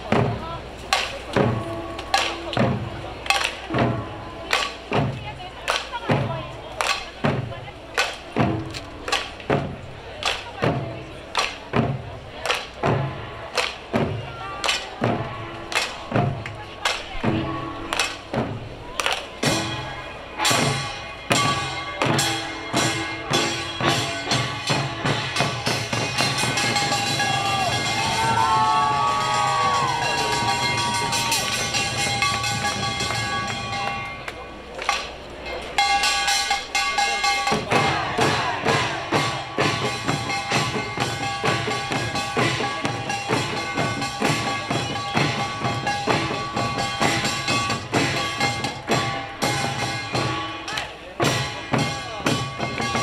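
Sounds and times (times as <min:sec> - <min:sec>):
hand drums struck by troupe: 0:00.0 - 0:53.0.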